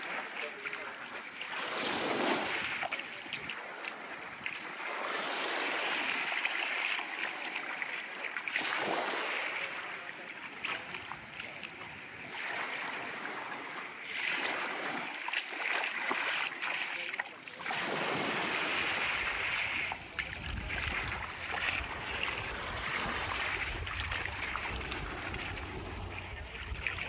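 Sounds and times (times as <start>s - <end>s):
waves washing onto beach: 0.0s - 27.0s
low rumble: 20.6s - 27.0s.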